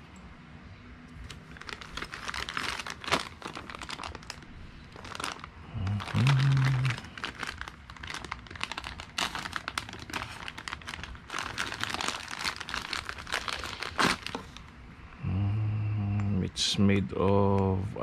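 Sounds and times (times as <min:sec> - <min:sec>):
plastic bags crinkling: 0:01.2 - 0:14.8
low hum of voice: 0:05.6 - 0:07.2, 0:15.1 - 0:18.0.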